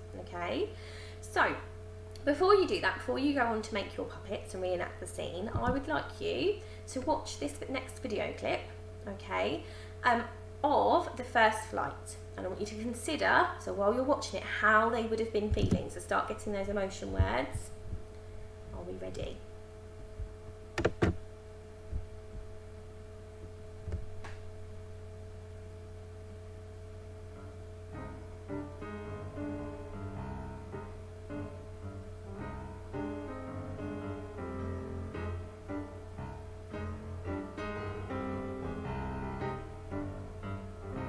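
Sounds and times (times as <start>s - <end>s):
steady hum: 0.0s - 41.0s
solo piano music: 27.3s - 41.0s.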